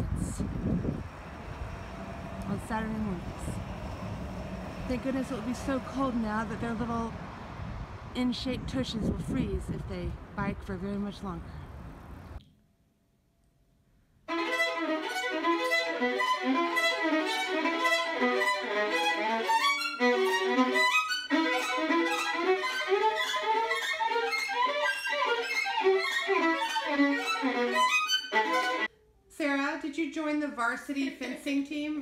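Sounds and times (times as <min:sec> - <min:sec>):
solo violin playing fast notes: 0:00.8 - 0:06.8, 0:14.3 - 0:28.9.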